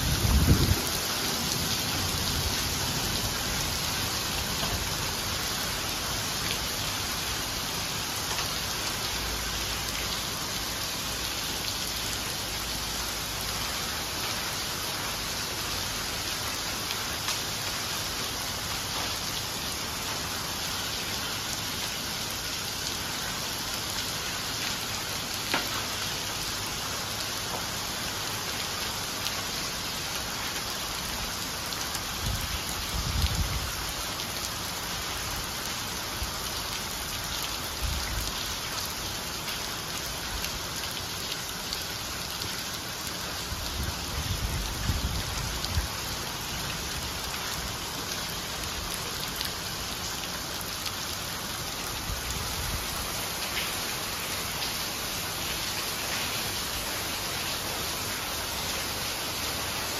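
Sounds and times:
heavy rain hissing: 0.0 - 59.9
raindrop ticks: 25.5 - 25.9.

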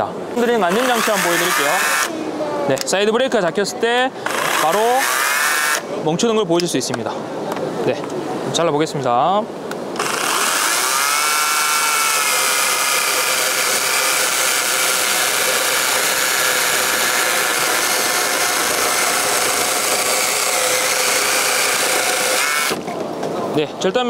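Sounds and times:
electric chainsaw cutting log: 0.4 - 2.1, 4.2 - 5.8, 10.0 - 22.8.

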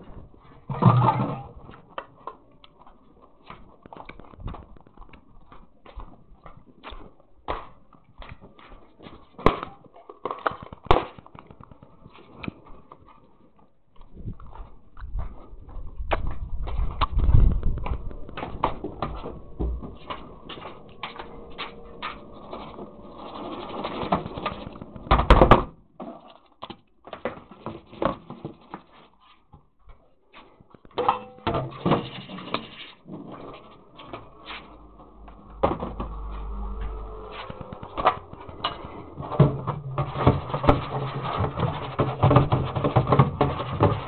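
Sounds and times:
handling rumble: 14.2 - 25.5, 33.0 - 44.0.

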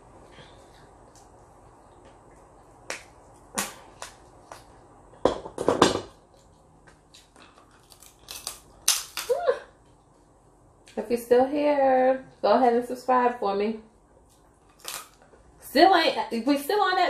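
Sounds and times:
crab shell cracking: 7.2 - 9.4, 14.6 - 15.2.

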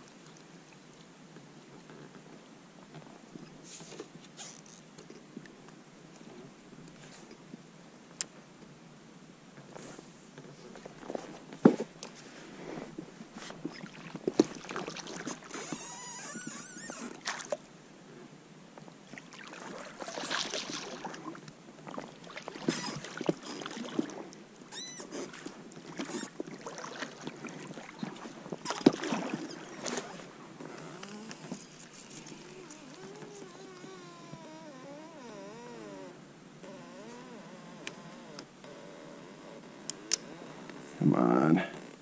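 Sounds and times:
oars splashing through water: 12.8 - 17.7, 19.0 - 34.2.

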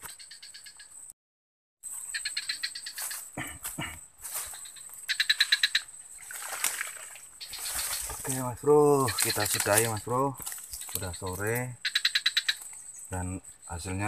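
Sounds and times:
frog pulsed trills: 4.6 - 6.2, 11.1 - 14.0.

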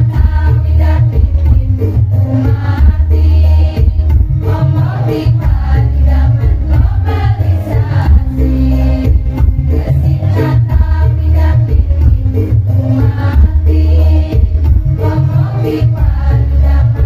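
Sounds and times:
amplified backing music with heavy bass: 0.0 - 17.0
women's choir singing in unison: 0.0 - 17.0.

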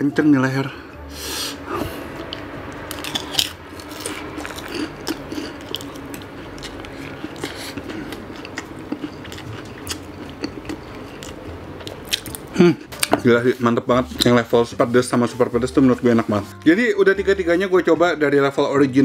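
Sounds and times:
close-up chewing: 2.2 - 13.1.

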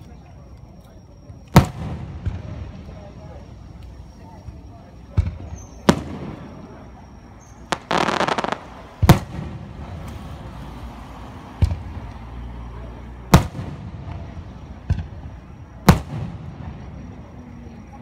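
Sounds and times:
firework booms echoing: 1.6 - 2.8, 5.2 - 6.9, 7.7 - 10.2, 13.3 - 17.2
firework crackle: 5.4 - 12.1.

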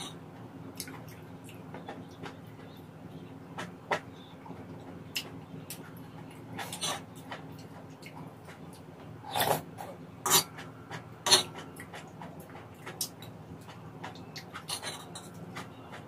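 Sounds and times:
low steady hum: 0.0 - 16.0
chewing: 5.1 - 16.0
fork scraping on a pan: 6.6 - 7.1, 9.2 - 10.6, 14.6 - 15.7.

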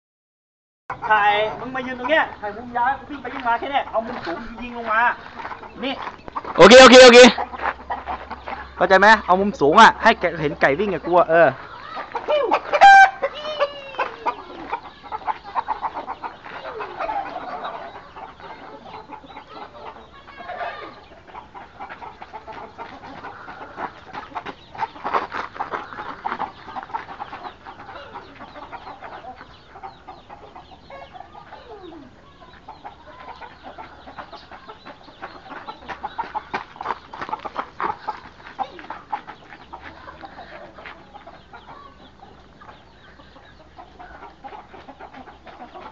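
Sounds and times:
chickens clucking and calling: 0.9 - 45.9
footsteps on gravelly dirt: 2.2 - 13.1, 13.9 - 17.6, 21.2 - 29.8, 32.5 - 41.8, 44.3 - 45.9.

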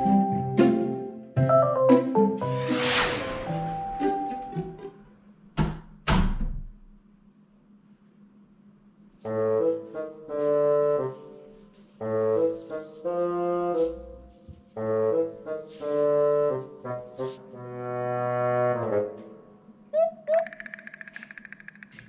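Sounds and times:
jaunty background tune: 0.0 - 2.8, 3.4 - 5.2.

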